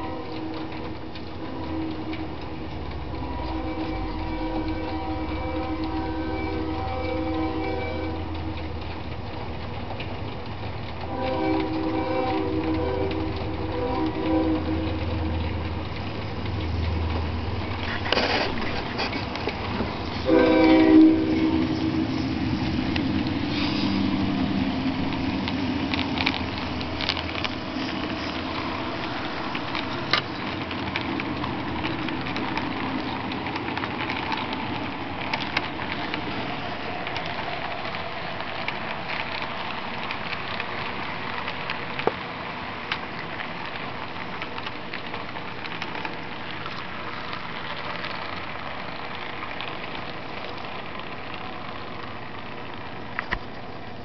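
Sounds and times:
clicks at rail joints: 25.0s - 53.6s.

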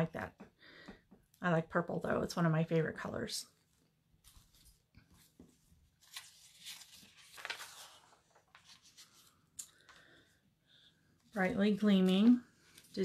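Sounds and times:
paper pages rustling: 3.7s - 10.1s.

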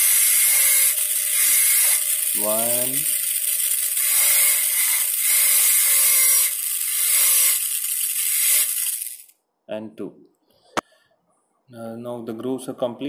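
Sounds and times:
dental drill high-pitched hiss: 0.0s - 9.3s.

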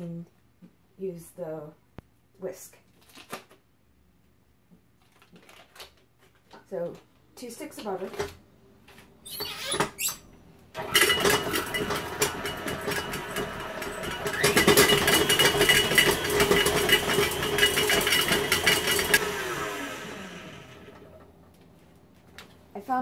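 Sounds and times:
stand mixer whisking butter: 10.8s - 21.0s.

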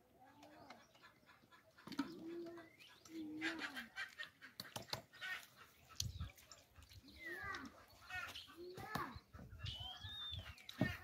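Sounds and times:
pigeons cooing: 0.0s - 6.5s.

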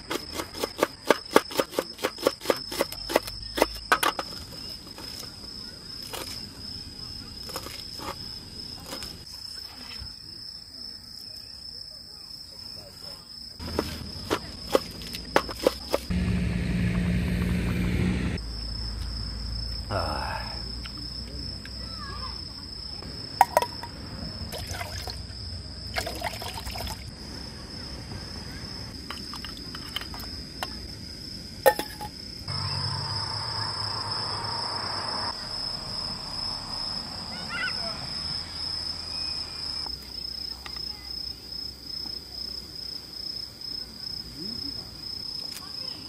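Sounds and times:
crickets chirring: 0.0s - 16.1s, 18.4s - 46.0s
camp cookware clinking: 31.7s - 32.2s.

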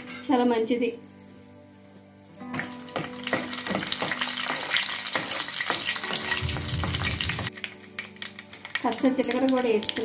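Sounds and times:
hot oil sizzling and crackling: 2.5s - 10.0s.

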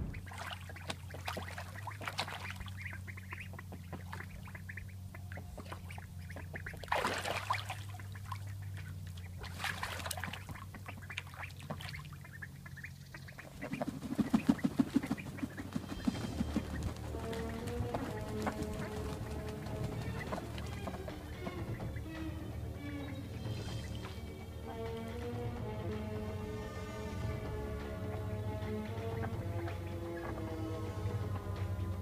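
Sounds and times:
duck flapping wings: 0.0s - 26.0s
ducks splashing in water: 0.0s - 26.5s, 27.2s - 32.0s
ducks quacking: 0.0s - 32.0s.

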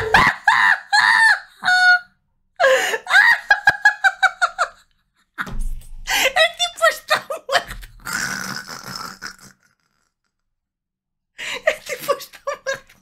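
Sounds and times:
woman laughing high-pitched: 0.0s - 2.0s, 2.6s - 4.8s, 11.4s - 13.0s.

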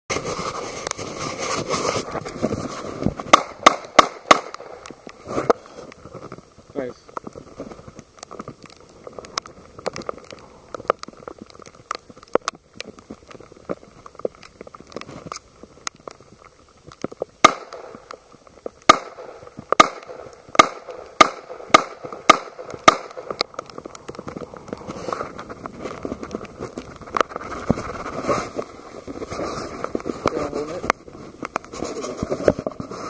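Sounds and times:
rustling: 0.1s - 33.0s
pistol shots: 3.3s - 4.8s, 17.4s - 17.9s, 18.9s - 23.2s.

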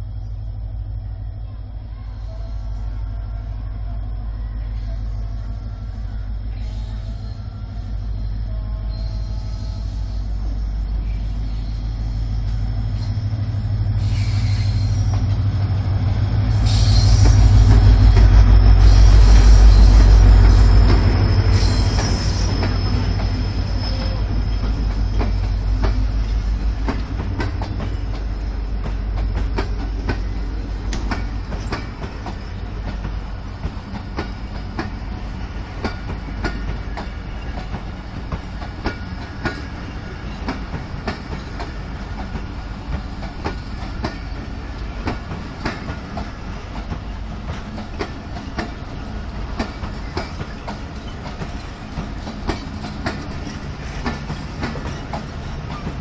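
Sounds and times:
locomotive engine drone: 0.0s - 56.0s
high wheel squeal: 13.9s - 15.9s, 16.5s - 27.0s, 47.0s - 56.0s
wheels clacking over rail joints: 19.7s - 56.0s.

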